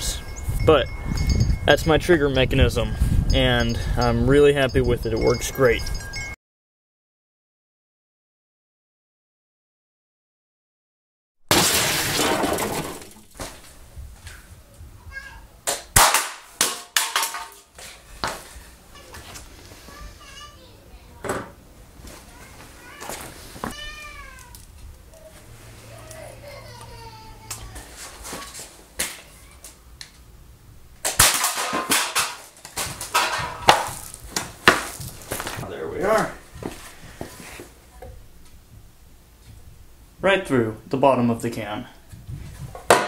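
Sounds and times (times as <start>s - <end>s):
cans clattering as they fall: 11.5s - 13.5s, 15.7s - 17.8s, 31.0s - 35.0s.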